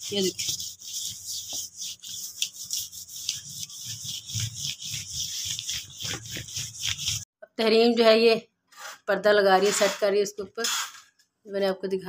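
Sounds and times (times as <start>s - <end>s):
cloth wiping a counter: 0.0s - 7.3s.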